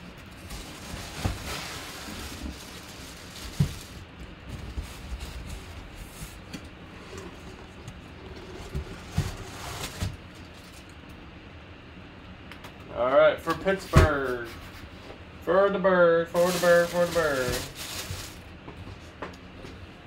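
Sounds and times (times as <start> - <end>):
cardboard flaps scraping: 0.2 - 10.8.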